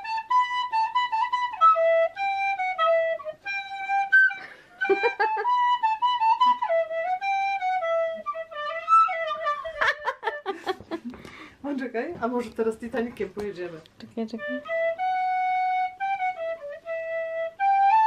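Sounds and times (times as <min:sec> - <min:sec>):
recorder playing a melody: 0:00.0 - 0:10.7, 0:14.2 - 0:18.0.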